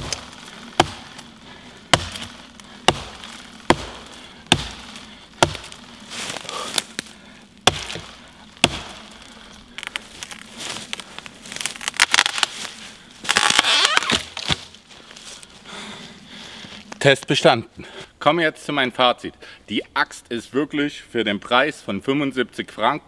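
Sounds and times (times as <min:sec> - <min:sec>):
axe chopping into tree: 0:00.0 - 0:01.2, 0:01.9 - 0:09.2, 0:13.3 - 0:14.7
wood cracking and snapping: 0:00.0 - 0:14.8.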